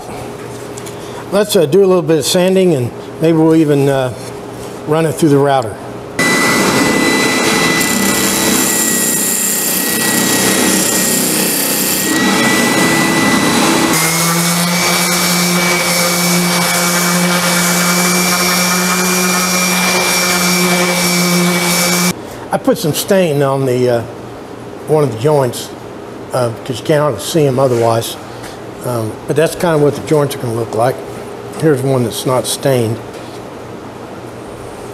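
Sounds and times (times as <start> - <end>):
orbital sander sanding wood: 6.2 - 22.2.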